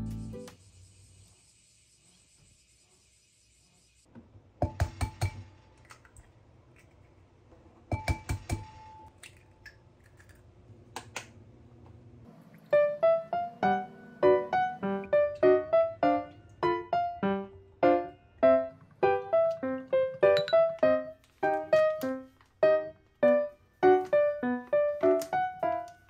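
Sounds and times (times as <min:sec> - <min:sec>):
keyboard music: 0:00.0 - 0:00.5, 0:12.6 - 0:26.0.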